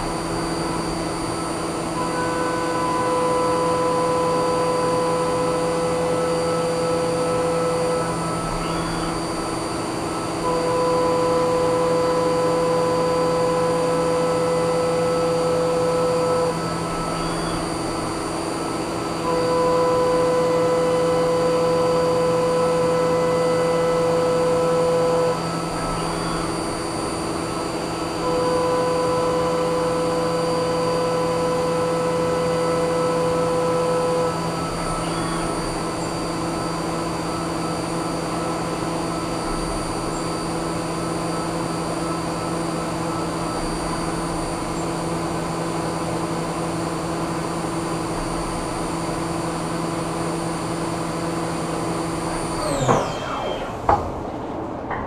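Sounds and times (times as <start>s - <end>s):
milling spindle whine: 0.0s - 55.0s
metal cutting tone: 25.3s - 55.0s.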